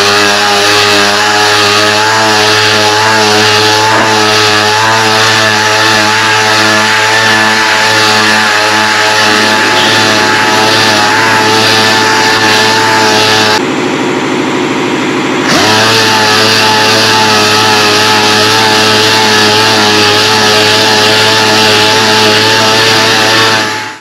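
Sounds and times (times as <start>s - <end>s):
orbital sander whining: 0.0s - 24.0s.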